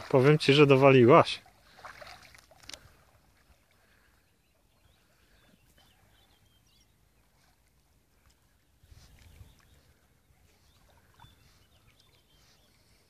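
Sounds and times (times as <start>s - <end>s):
faint outdoor hush: 0.0s - 13.0s
faint high bird chirps: 4.0s - 7.6s, 8.9s - 13.0s.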